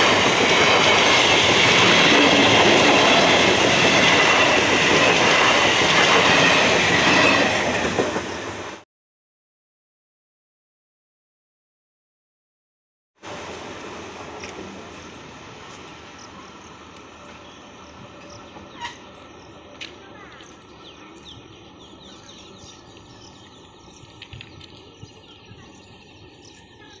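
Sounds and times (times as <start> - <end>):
electric train rumble: 0.0 - 8.8, 13.2 - 27.0
birds chirping: 16.1 - 27.0.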